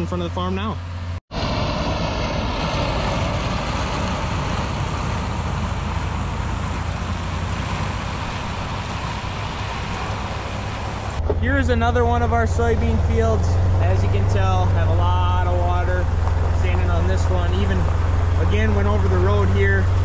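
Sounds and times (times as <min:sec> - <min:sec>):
vehicle engine and road noise: 0:00.0 - 0:20.0.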